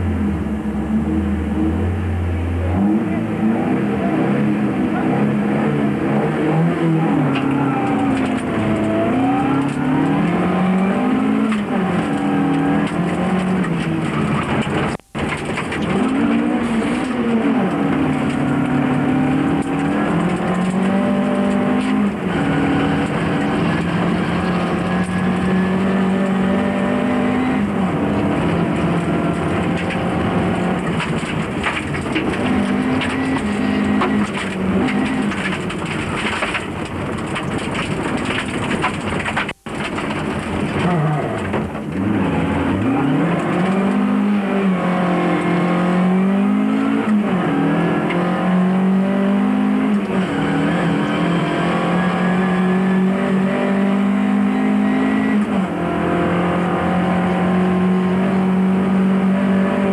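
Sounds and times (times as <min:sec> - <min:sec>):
rally car engine revving: 0:00.0 - 0:59.9
tyres rumbling on gravel: 0:07.2 - 0:44.3.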